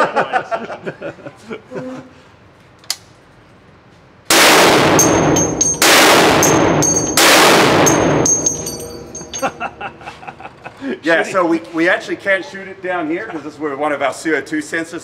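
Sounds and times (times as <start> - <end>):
rifle shots booming and echoing: 4.3 - 9.1
high metallic ringing: 4.7 - 10.1
small metallic clinks: 5.0 - 9.7.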